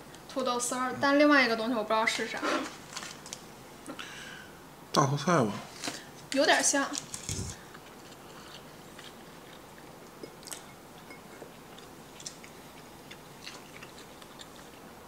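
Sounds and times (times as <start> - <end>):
quiet chewing: 7.0 - 15.0.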